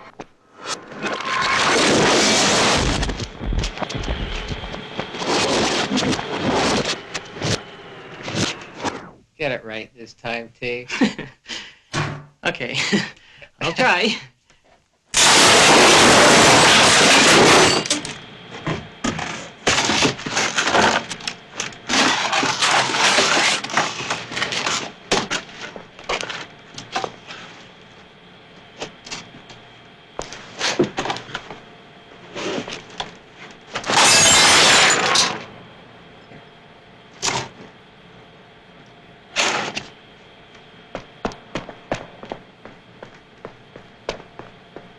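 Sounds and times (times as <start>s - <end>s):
table smashing: 15.2s - 18.0s, 33.8s - 35.5s.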